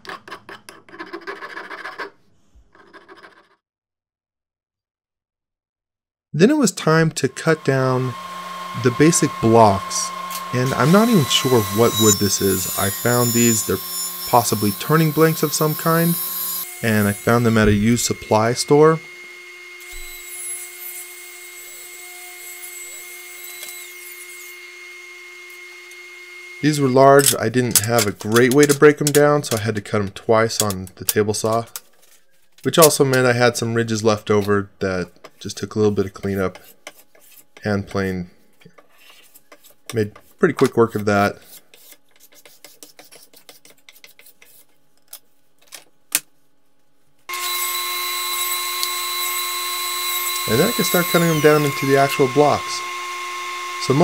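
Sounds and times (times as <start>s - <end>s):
table saw motor whine: 7.2s - 27.2s, 47.3s - 54.0s
saw blade cutting wood: 7.4s - 29.6s, 39.0s - 44.7s, 47.3s - 54.0s
hand plane shaving wood: 8.7s - 18.5s, 38.9s - 44.7s, 50.4s - 52.6s.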